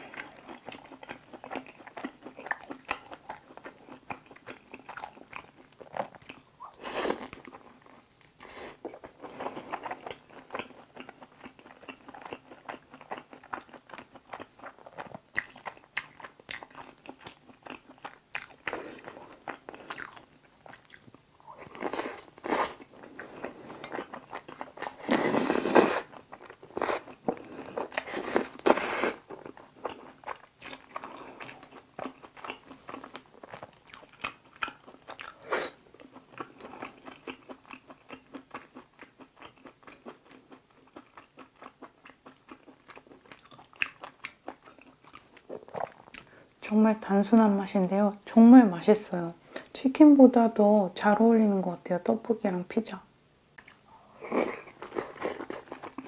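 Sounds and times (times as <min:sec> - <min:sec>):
slurping noodles: 0:24.9 - 0:26.1.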